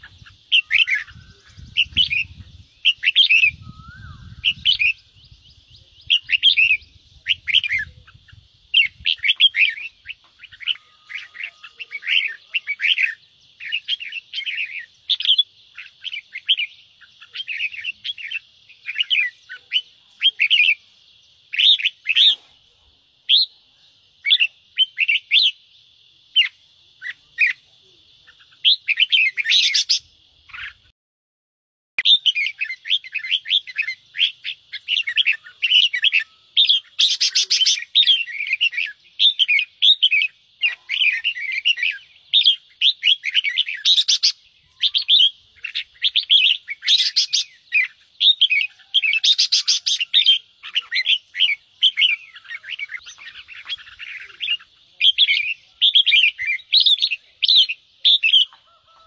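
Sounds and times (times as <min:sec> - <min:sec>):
birds chattering calls: 0:00.0 - 0:30.9, 0:32.0 - 0:59.0.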